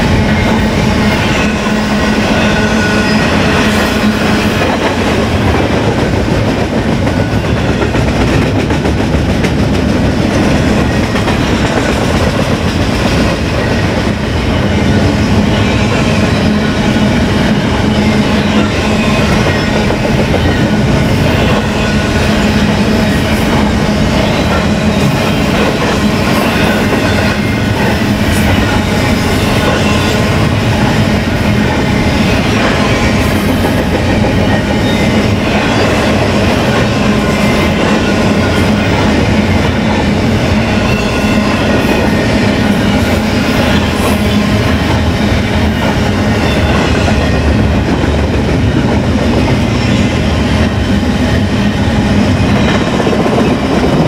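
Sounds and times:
freight train rumbling past: 0:00.0 - 0:54.0
wheels clattering on rails: 0:03.3 - 0:16.6.

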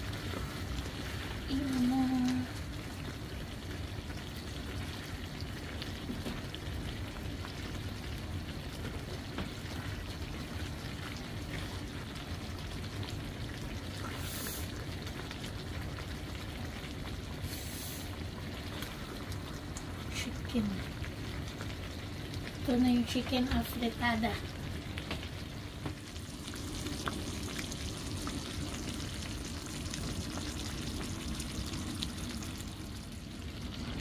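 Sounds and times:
tomato sauce simmering and sizzling: 0:00.0 - 0:34.0
loud hisses from pan: 0:14.0 - 0:14.8, 0:17.4 - 0:18.3.

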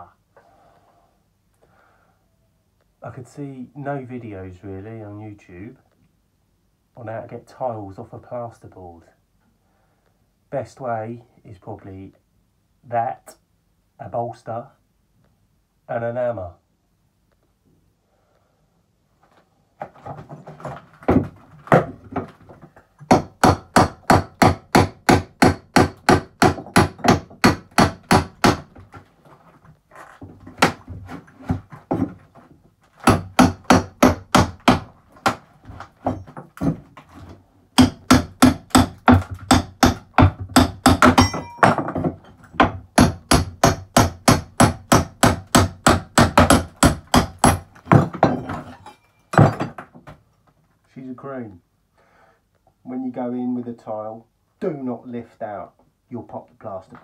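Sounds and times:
hammer striking chisel on tiles: 0:37.8 - 0:48.6.

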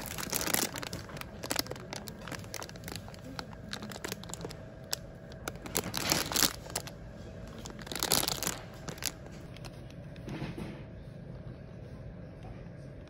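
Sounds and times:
plastic packet crinkling: 0:00.0 - 0:09.9.

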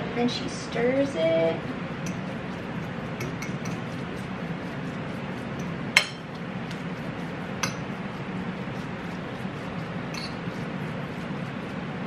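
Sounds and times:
fork mashing food on plate: 0:01.6 - 0:12.0
fork clinking against plate: 0:10.1 - 0:10.5.

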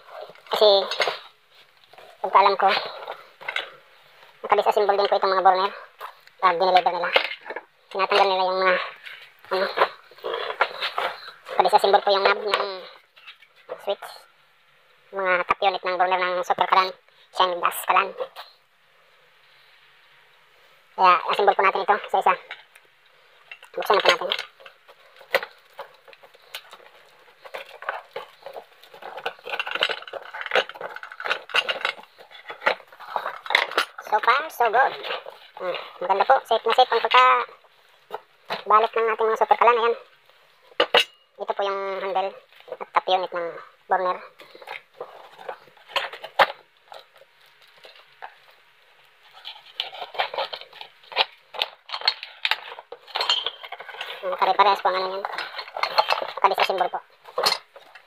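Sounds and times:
tape and cardboard crackling: 0:23.5 - 0:39.0, 0:44.3 - 0:58.0.

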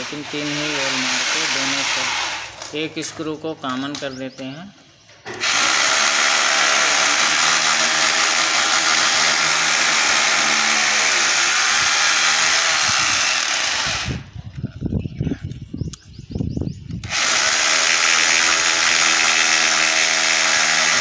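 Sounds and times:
electric drill boring into concrete: 0:00.0 - 0:02.7, 0:05.3 - 0:14.3, 0:17.0 - 0:21.0.

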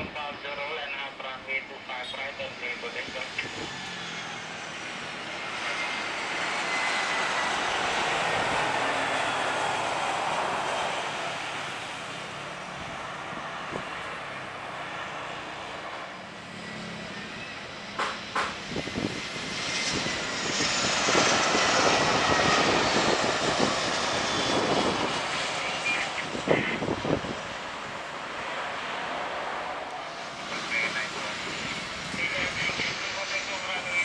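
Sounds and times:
high jet whine: 0:00.0 - 0:34.0
jet engine rumble: 0:00.0 - 0:34.0.

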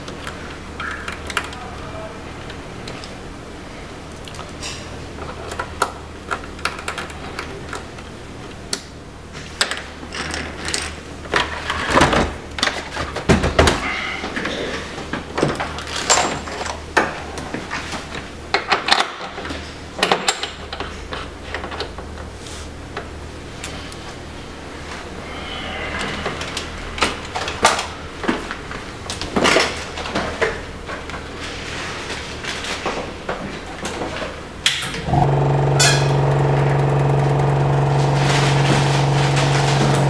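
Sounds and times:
steady low hum: 0:34.9 - 0:40.0.

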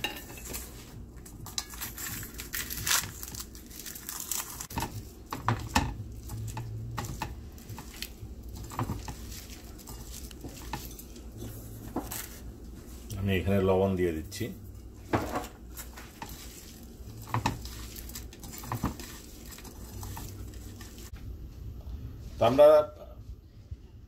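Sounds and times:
fried chillies crackling and crunching: 0:01.6 - 0:11.3, 0:15.7 - 0:21.1.

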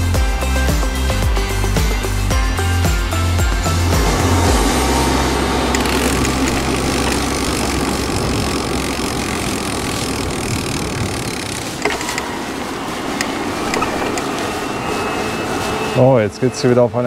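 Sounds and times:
road noise: 0:00.0 - 0:17.0
low steady hum: 0:02.3 - 0:17.0
wind rushing: 0:02.6 - 0:16.8.

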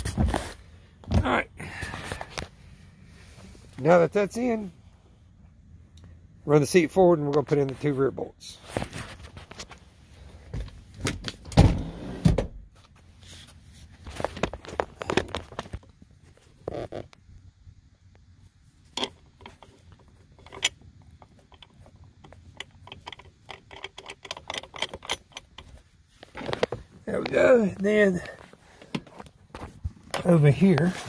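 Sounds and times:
metal bolt clicking and rattling: 0:18.9 - 0:25.8.

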